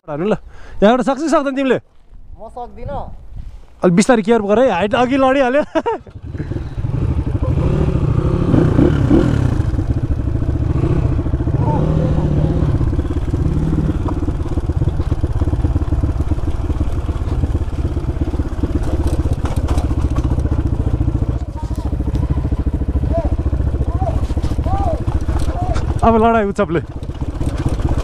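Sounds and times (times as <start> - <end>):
dirt bike engine running: 5.0 - 28.0.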